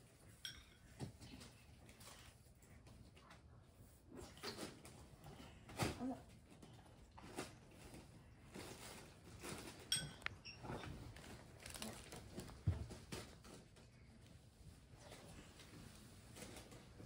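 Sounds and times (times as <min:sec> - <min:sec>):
soft handling knocks and rustles: 0:04.5 - 0:17.0.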